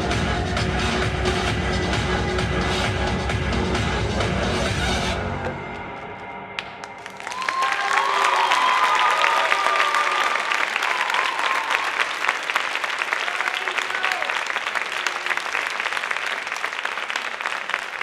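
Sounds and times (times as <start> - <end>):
audience applauding: 6.6 - 18.0.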